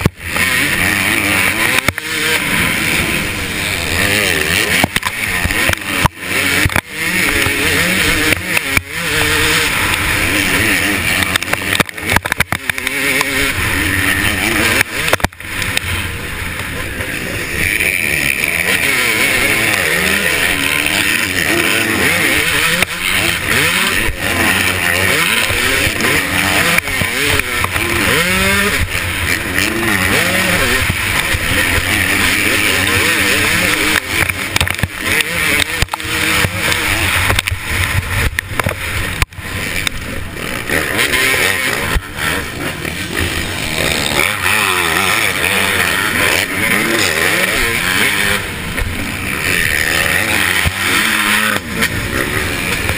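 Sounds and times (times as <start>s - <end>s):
constant rush of noise: 0.0s - 52.9s
motocross engine revving: 0.0s - 52.9s.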